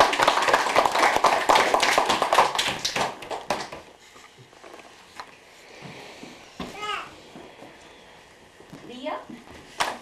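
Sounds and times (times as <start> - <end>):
people clapping: 0.0 - 3.9.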